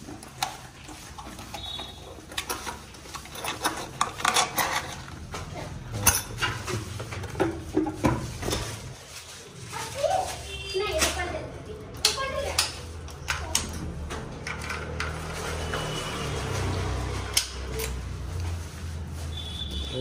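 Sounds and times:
metal objects clinking: 0:00.9 - 0:07.8.

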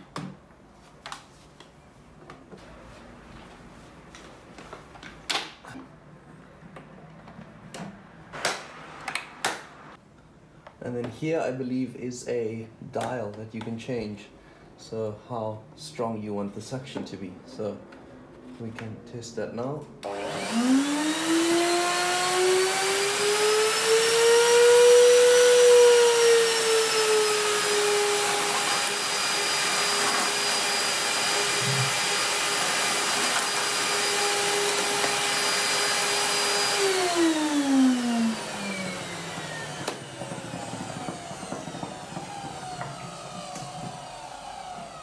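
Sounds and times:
vacuum cleaner motor whining: 0:20.0 - 0:45.0.

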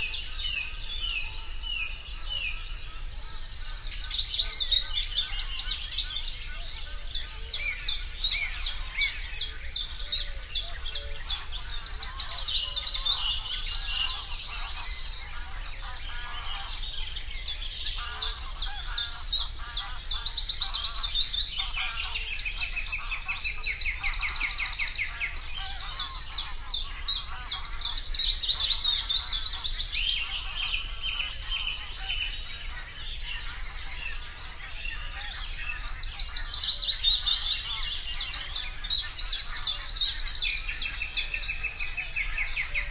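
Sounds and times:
bird singing chattering song: 0:00.0 - 0:42.9.

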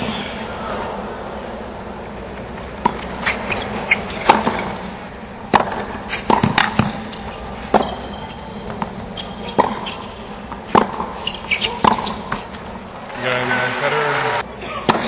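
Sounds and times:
stadium background noise: 0:00.0 - 0:15.0
tennis ball hitting rackets: 0:02.4 - 0:12.8
tennis ball bouncing on hard court: 0:02.6 - 0:12.6.

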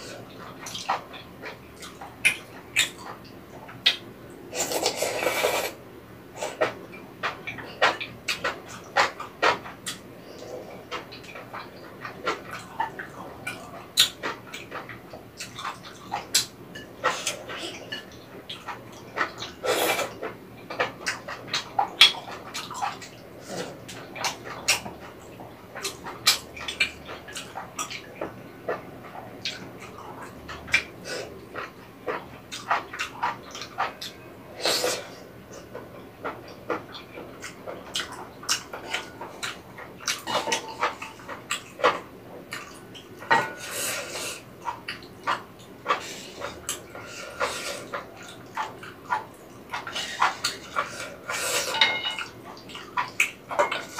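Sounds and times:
noodle slurping: 0:04.5 - 0:05.8
slurping noodles: 0:04.5 - 0:05.8, 0:19.6 - 0:20.2, 0:34.5 - 0:35.3
wet chewing: 0:06.4 - 0:53.9.

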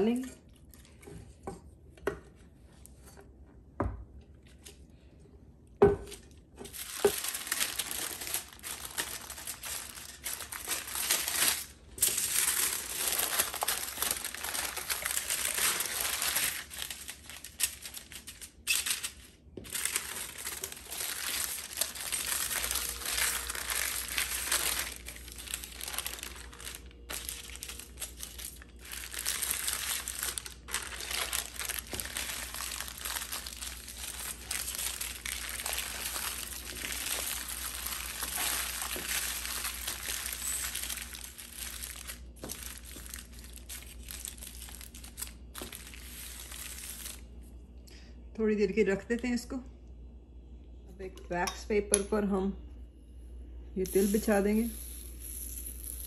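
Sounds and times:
aluminium foil crinkling: 0:06.6 - 0:47.3, 0:53.9 - 0:56.0
parchment paper crinkling: 0:06.6 - 0:47.3.

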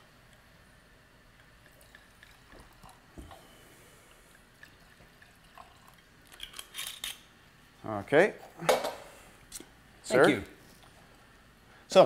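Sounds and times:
wine pouring into a glass: 0:04.4 - 0:06.2.

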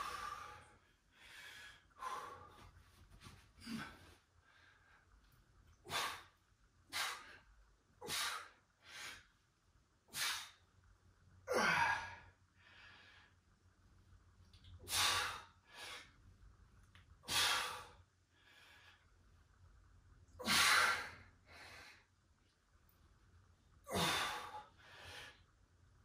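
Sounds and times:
man breathing hard: 0:00.0 - 0:02.8, 0:05.8 - 0:09.4, 0:11.5 - 0:13.4, 0:14.8 - 0:16.2, 0:17.2 - 0:19.1, 0:20.4 - 0:22.1, 0:23.9 - 0:25.5.

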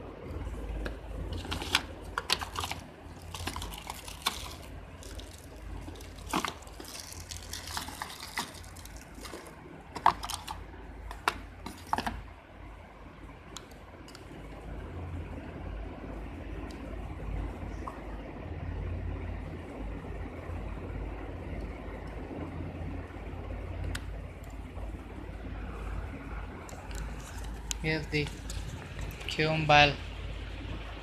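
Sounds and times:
cardboard packaging rustling: 0:00.7 - 0:12.2, 0:26.7 - 0:29.4.

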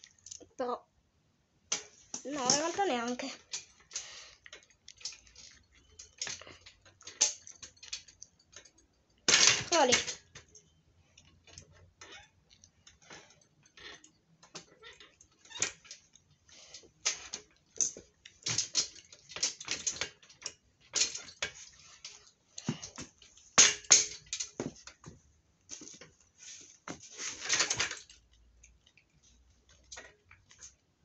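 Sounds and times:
hand tools clicking and knocking: 0:01.7 - 0:11.9, 0:12.5 - 0:26.0.

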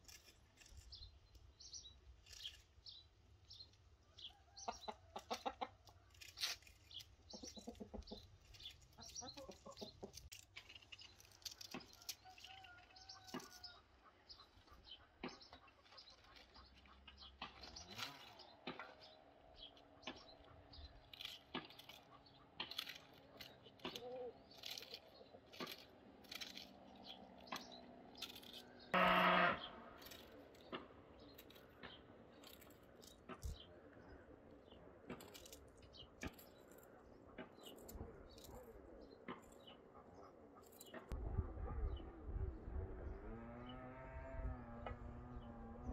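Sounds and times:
knife cutting cabbage: 0:05.7 - 0:13.7, 0:19.8 - 0:33.6, 0:35.1 - 0:38.7.

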